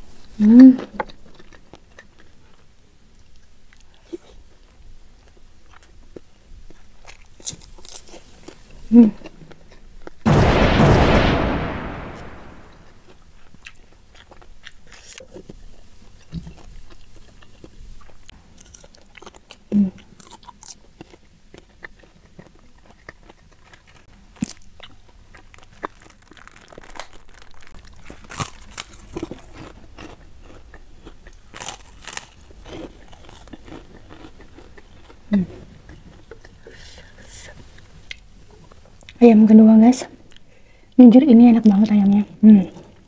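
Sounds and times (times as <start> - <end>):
chewing and crunching food: 0.0 - 10.2, 13.0 - 39.2, 41.6 - 43.0
crunching bites into cracker: 7.0 - 8.6, 22.8 - 35.2.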